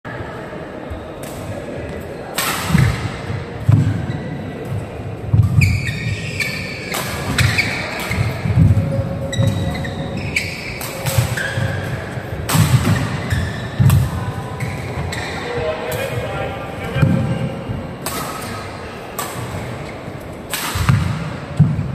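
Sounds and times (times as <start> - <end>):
racket hitting shuttlecock: 2.3 - 4.0, 5.3 - 15.3, 18.0 - 19.9, 20.5 - 21.9.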